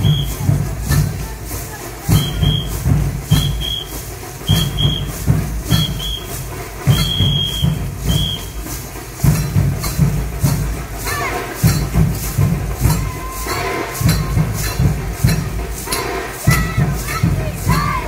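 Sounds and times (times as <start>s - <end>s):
short high whistle blasts: 0.0s - 0.4s, 2.2s - 8.7s
steady drum beat: 0.0s - 18.0s.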